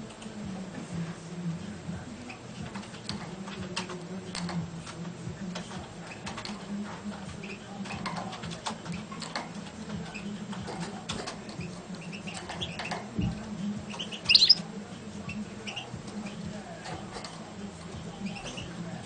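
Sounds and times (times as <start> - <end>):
bird ticking and tapping in cage: 2.0 - 19.0
high bird chirps: 13.9 - 14.6.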